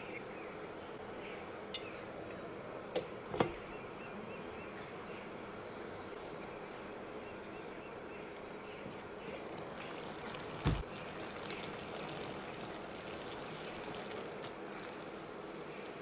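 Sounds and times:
liquid simmering and bubbling: 8.8s - 16.0s
wooden spoon moving through rice: 9.2s - 16.0s.

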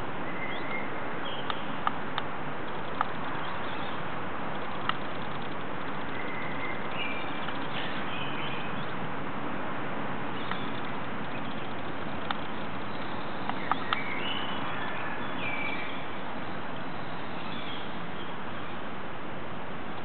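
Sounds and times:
sharp clicks: 1.5s - 3.5s, 4.5s - 6.6s, 10.4s - 12.6s
songbird whistling: 6.0s - 8.9s, 12.9s - 16.0s.

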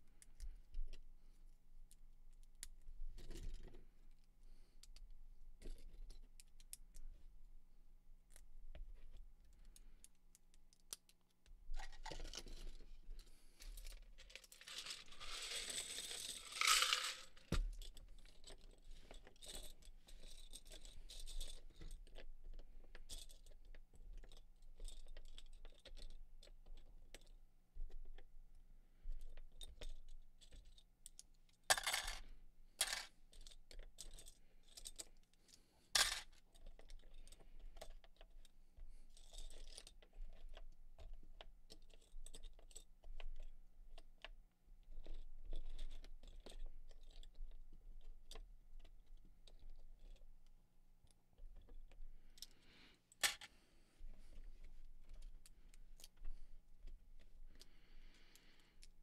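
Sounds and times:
plastic bricks clicking and clattering: 14.2s - 22.2s, 31.7s - 35.1s, 36.0s - 37.9s, 53.2s - 53.6s
plastic pieces sliding on table: 14.4s - 17.4s.

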